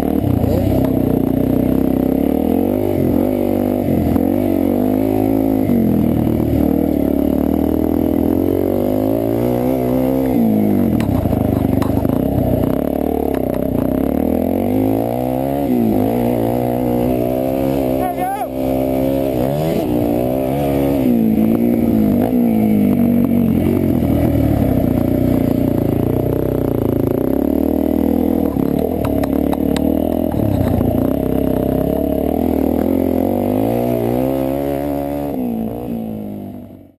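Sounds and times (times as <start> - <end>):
dirt bike engine revving: 0.0 - 36.9.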